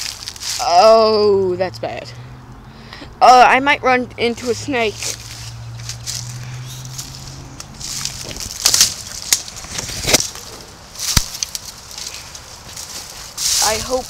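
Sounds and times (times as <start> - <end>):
footsteps crunching through dry leaves: 0.0 - 1.2, 4.4 - 14.0.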